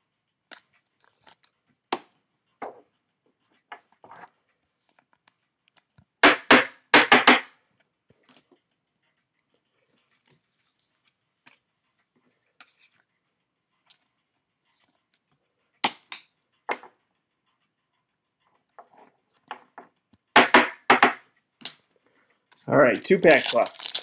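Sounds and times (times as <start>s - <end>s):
plastic wrapping crinkling: 22.9s - 24.0s.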